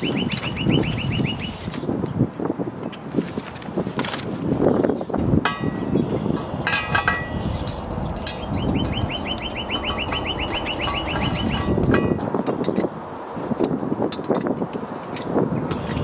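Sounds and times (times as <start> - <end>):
bird trilling: 0.0 - 1.7, 7.4 - 12.2
metal bolts and nuts clinking: 3.5 - 16.0.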